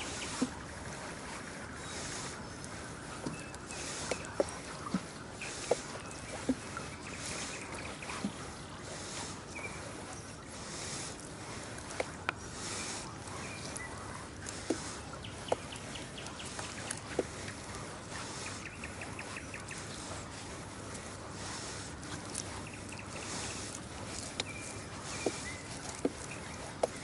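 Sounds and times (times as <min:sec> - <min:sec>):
oars knocking: 0:00.0 - 0:27.0
oars swishing water: 0:00.0 - 0:27.0
bird calling in fast ticks: 0:12.0 - 0:17.6, 0:22.4 - 0:27.0.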